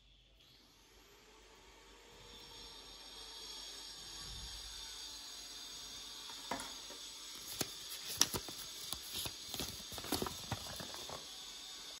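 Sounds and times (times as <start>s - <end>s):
paper leaflet rustling: 7.4s - 11.2s.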